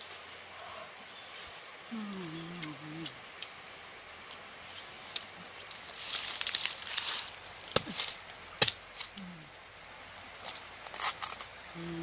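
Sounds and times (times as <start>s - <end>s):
dry leaves rustling: 4.6s - 12.0s.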